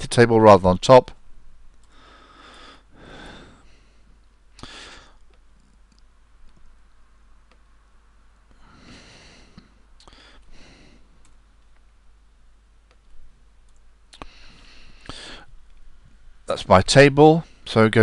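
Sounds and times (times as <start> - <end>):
short breaths: 1.9 - 5.3, 8.5 - 11.2, 14.2 - 15.5.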